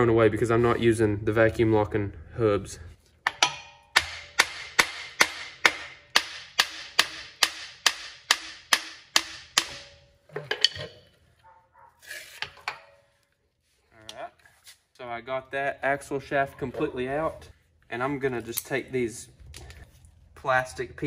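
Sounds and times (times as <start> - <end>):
sharp metallic clunks: 3.2 - 11.1
metal shaft scraping: 11.8 - 13.1.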